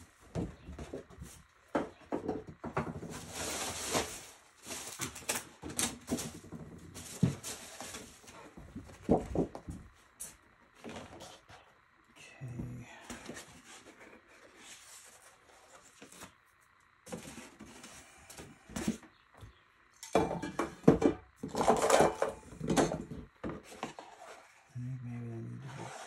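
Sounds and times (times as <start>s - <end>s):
short low hum: 6.1s - 26.0s
hard objects clattering: 20.0s - 24.3s.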